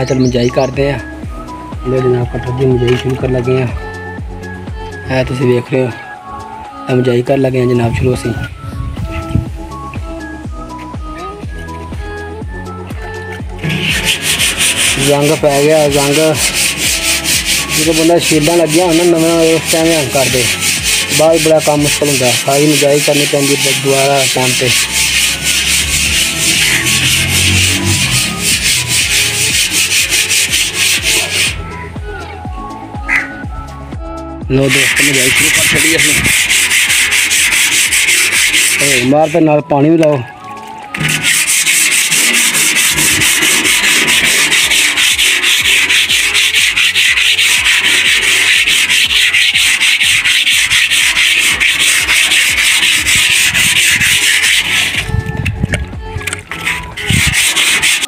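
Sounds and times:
scrubbing rust off steel: 0:13.5 - 0:31.6, 0:34.6 - 0:39.6, 0:40.8 - 0:58.0.

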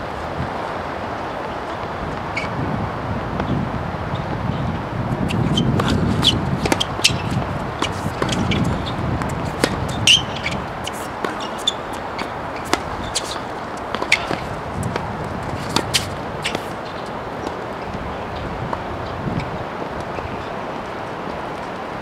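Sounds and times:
tennis ball bouncing: 0:05.2 - 0:18.0
racket striking tennis ball: 0:05.3 - 0:17.6.

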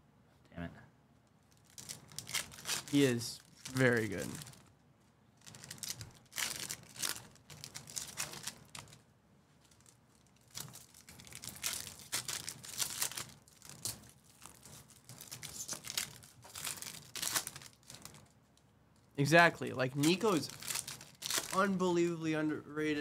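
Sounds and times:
foil wrappers crinkling and tearing: 0:01.5 - 0:04.7, 0:05.4 - 0:09.0, 0:09.6 - 0:18.4, 0:19.7 - 0:21.9.

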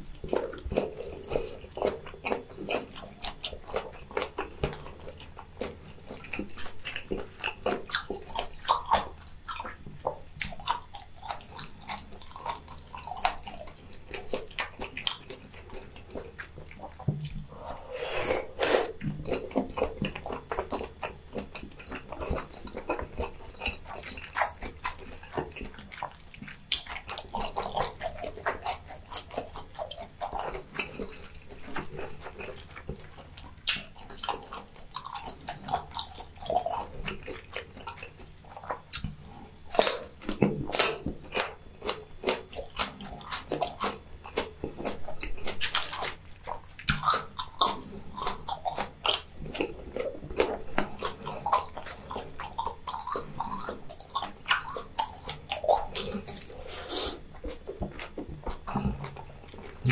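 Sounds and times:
wet chewing mouth smacks: 0:18.3 - 0:59.9.

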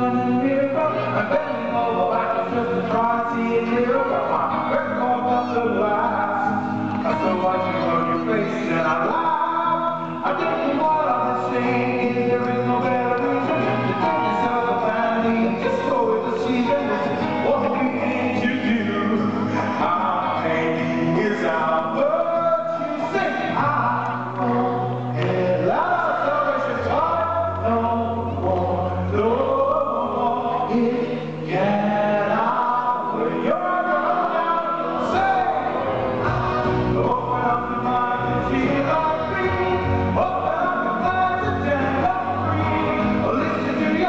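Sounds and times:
man singing through pa: 0:00.0 - 0:44.0
musical accompaniment: 0:00.0 - 0:44.0.

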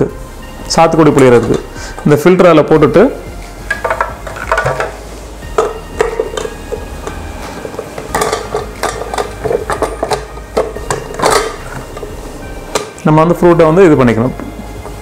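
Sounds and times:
metal mixer jar clinking: 0:03.7 - 0:07.2, 0:07.9 - 0:13.0.

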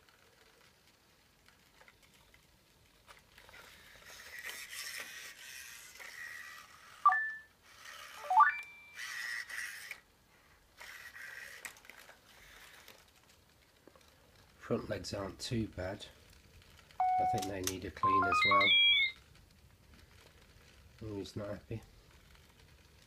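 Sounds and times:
robot servo motors whirring: 0:03.4 - 0:08.2, 0:09.0 - 0:10.0, 0:10.8 - 0:13.0
rising electronic chirps: 0:07.1 - 0:07.5, 0:08.2 - 0:09.0, 0:17.0 - 0:19.2
short steady beep: 0:07.1 - 0:07.5, 0:08.2 - 0:09.0, 0:17.0 - 0:19.2.

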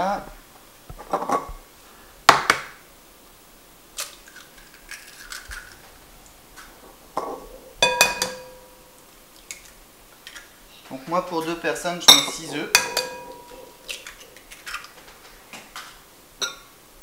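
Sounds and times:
glass bowl ringing: 0:07.8 - 0:08.8, 0:12.1 - 0:13.8
light clinks on glassware: 0:12.1 - 0:13.6.

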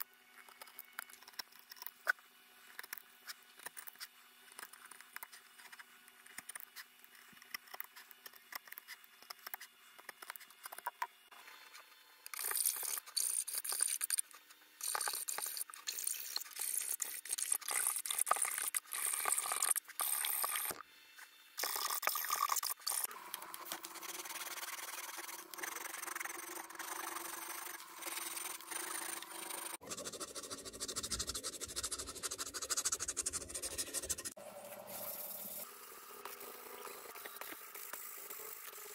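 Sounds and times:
sanding belt rasping on wood: 0:24.0 - 0:34.4.

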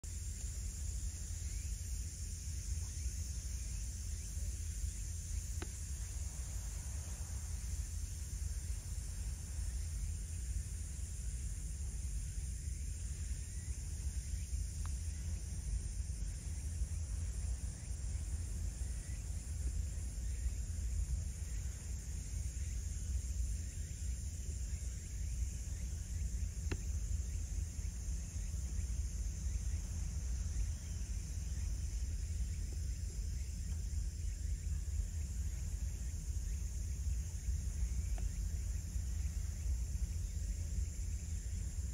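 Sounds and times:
faint high hiss: 0:00.0 - 0:41.9
faint click: 0:05.5 - 0:05.8, 0:14.8 - 0:15.1, 0:26.6 - 0:27.0, 0:38.1 - 0:38.4.

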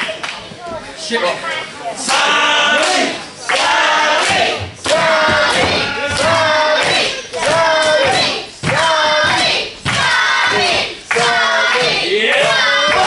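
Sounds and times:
crowd chanting in unison: 0:02.0 - 0:13.0.

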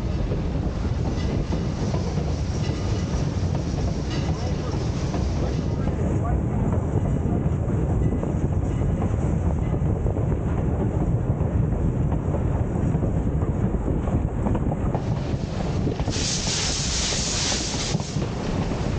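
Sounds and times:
low rumble of running train: 0:00.0 - 0:18.9
wind buffeting microphone: 0:00.0 - 0:18.9
loud steam hiss: 0:15.0 - 0:18.9.

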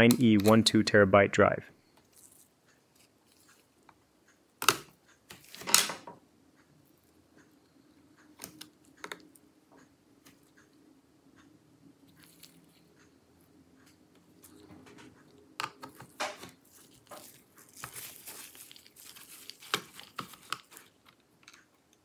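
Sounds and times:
crackling: 0:13.8 - 0:22.0.

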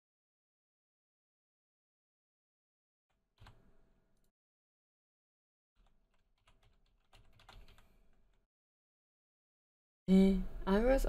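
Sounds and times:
typing on computer keyboard: 0:03.1 - 0:03.6, 0:05.8 - 0:08.4.

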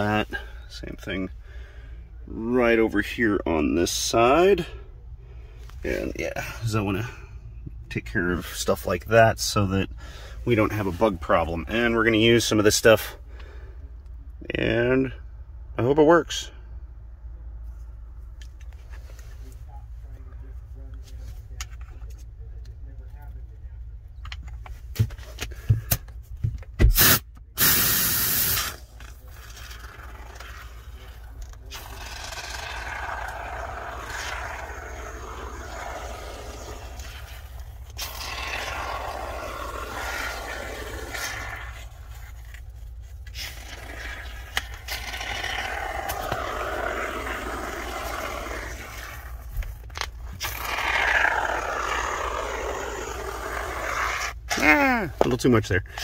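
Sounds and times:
spray foam hissing: 0:27.0 - 0:28.8, 0:31.8 - 0:42.0
can scraping and rubbing on wall: 0:29.4 - 0:49.6.

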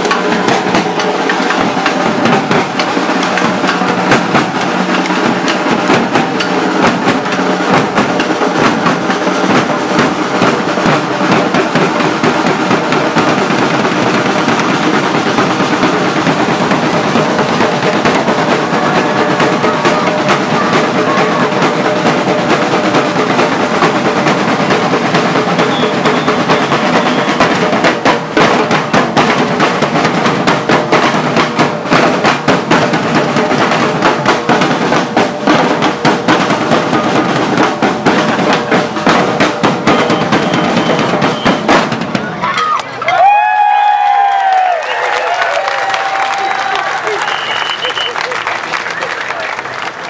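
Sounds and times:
street percussion band drumming: 0:00.0 - 0:50.0.

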